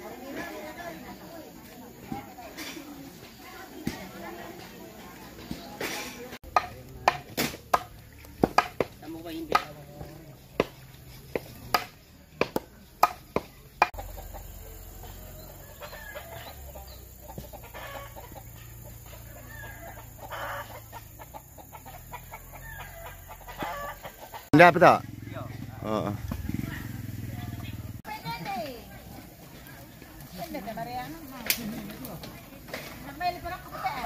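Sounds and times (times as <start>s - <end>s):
chicken clucking: 13.9s - 24.6s.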